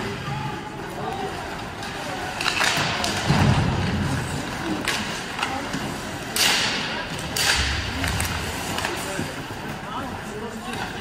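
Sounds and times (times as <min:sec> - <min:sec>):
puck and sticks knocking boards: 0:04.8 - 0:09.4.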